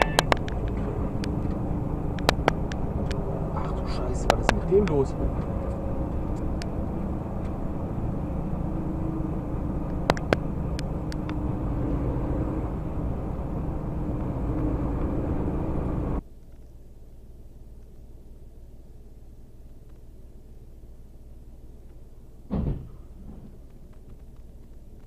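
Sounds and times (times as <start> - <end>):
sharp clicks: 0.0 - 3.2, 9.8 - 11.4
lorry engine and road drone: 0.0 - 25.0
low hum: 0.0 - 25.0.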